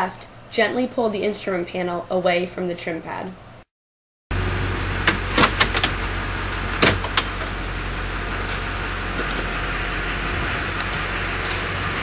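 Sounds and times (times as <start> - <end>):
low hum: 4.3 - 12.0.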